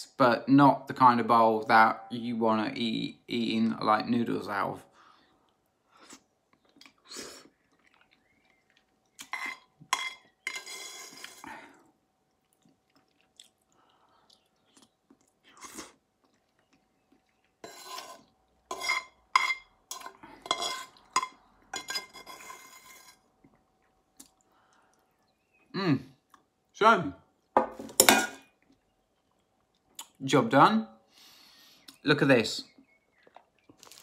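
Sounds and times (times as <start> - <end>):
person chewing: 5.4 - 10.4, 11.0 - 18.7, 23.2 - 25.4, 33.1 - 34.0.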